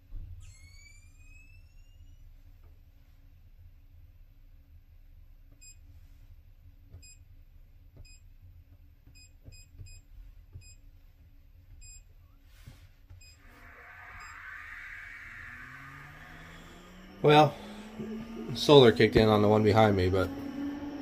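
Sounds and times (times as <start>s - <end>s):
faint electrical hum: 0.0s - 20.8s
high electronic chirps: 13.2s - 21.0s
cooling fan rushing air: 13.4s - 21.0s.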